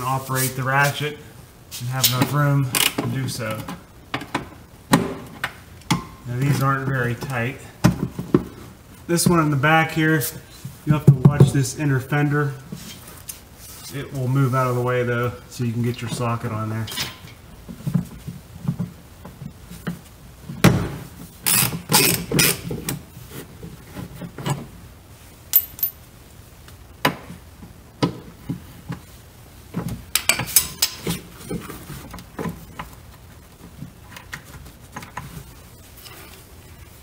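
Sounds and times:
metal tools knocking: 0:25.6 - 0:26.0.

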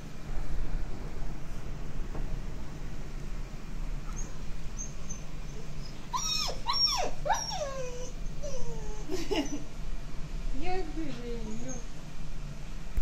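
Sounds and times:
dog whining: 0:04.1 - 0:09.7, 0:11.4 - 0:11.9.

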